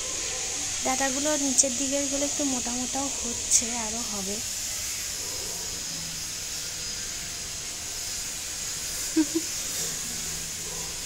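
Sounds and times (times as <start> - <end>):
steady high hiss: 0.0 - 11.0.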